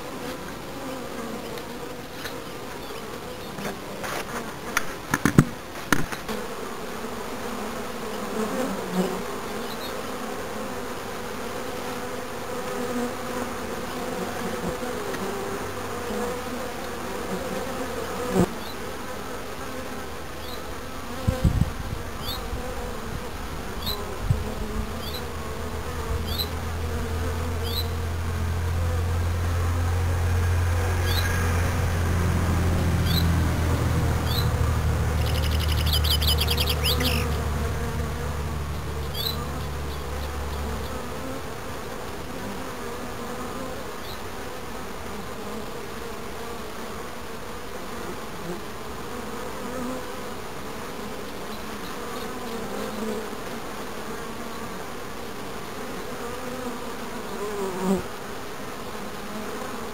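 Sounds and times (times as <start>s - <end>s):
honeybees buzzing: 0.0s - 59.9s
deep low hum: 24.8s - 41.2s.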